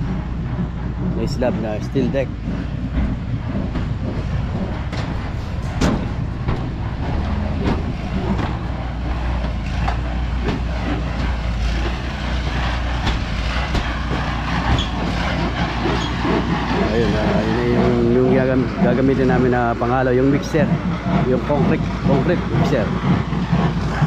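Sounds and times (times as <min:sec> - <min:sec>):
knocks and clicks: 0:00.0 - 0:16.7
concrete mixer engine droning: 0:00.0 - 0:24.0.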